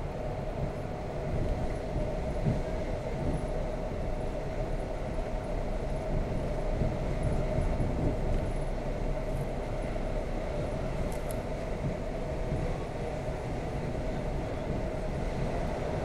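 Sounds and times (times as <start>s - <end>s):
train rumbling at speed: 0.0s - 16.0s.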